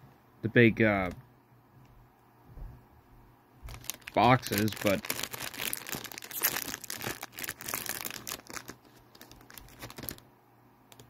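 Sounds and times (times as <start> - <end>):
plastic wrapper crinkling and tearing: 3.6 - 10.2.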